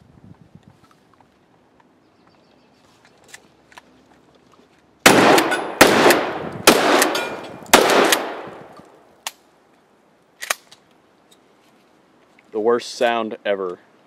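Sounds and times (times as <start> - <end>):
shotgun shots with echo: 5.1 - 8.7.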